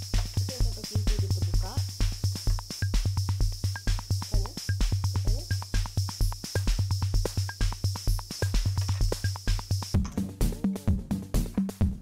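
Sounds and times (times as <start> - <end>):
electronic music: 0.0 - 12.0
fast drum machine beat: 0.0 - 12.0
heavy bass: 0.0 - 12.0.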